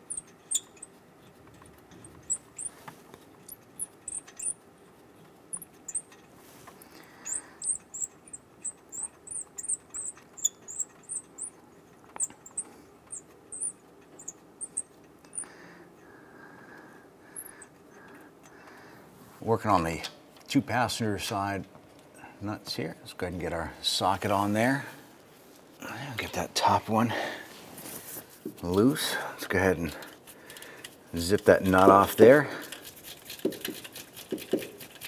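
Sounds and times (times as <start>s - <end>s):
high-pitched squeaks of nut: 0.0s - 2.8s, 3.4s - 4.9s, 5.5s - 6.3s, 6.9s - 15.6s.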